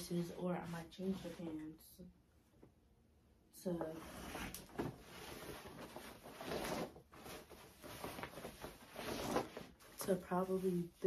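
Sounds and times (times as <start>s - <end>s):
denim jeans rustling: 4.8s - 11.0s.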